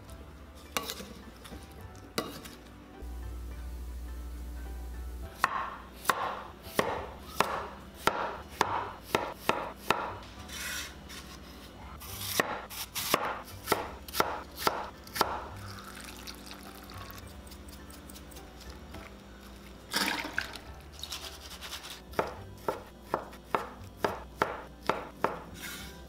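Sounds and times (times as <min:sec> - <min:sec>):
knife chopping on wooden board: 0:05.4 - 0:10.9, 0:12.2 - 0:15.5, 0:22.2 - 0:25.8.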